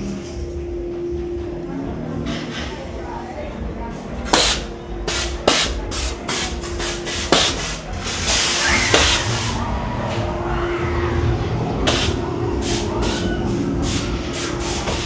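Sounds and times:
steady hum: 0:00.0 - 0:15.0
compressed air hissing blasts: 0:04.3 - 0:09.6, 0:11.9 - 0:15.0
low rumble: 0:07.9 - 0:14.3.

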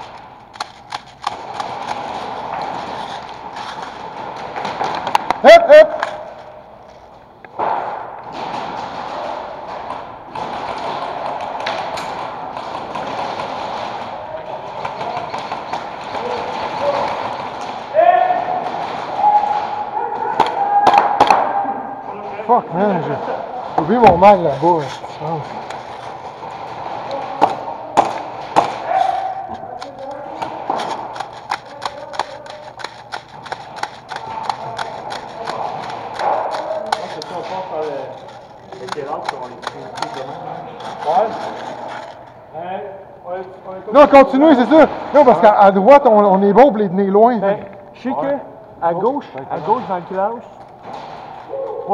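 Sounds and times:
noisy background: 0:00.0 - 0:51.9
faint voices: 0:26.8 - 0:42.5.

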